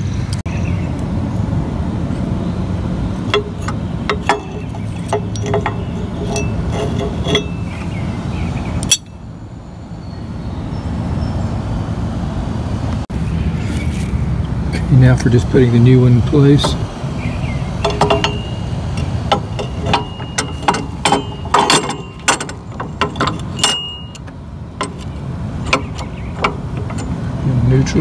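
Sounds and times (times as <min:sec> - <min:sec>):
low background rumble: 0:00.4 - 0:28.0
metal tools clinking: 0:03.2 - 0:08.0, 0:08.8 - 0:09.2, 0:17.7 - 0:28.0.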